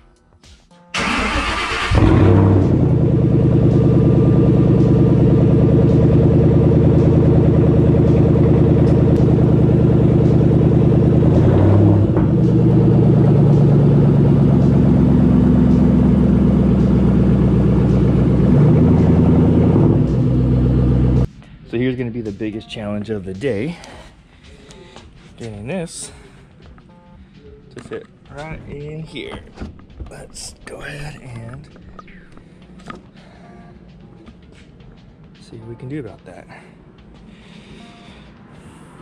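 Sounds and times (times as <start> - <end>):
engine cranking: 1.0 - 3.5
car engine idling loudly: 1.8 - 21.3.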